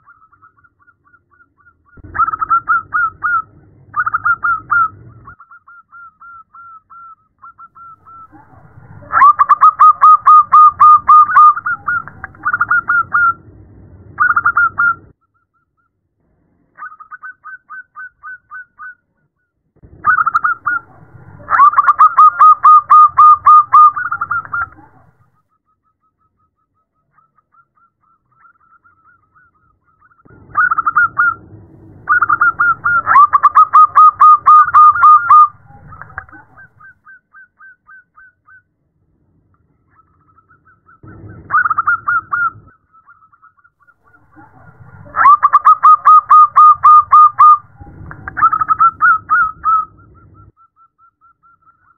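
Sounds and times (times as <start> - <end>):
dove cooing: 2.0 - 5.4, 7.8 - 13.4, 20.0 - 25.1, 30.3 - 36.9, 41.0 - 42.8, 44.0 - 50.5.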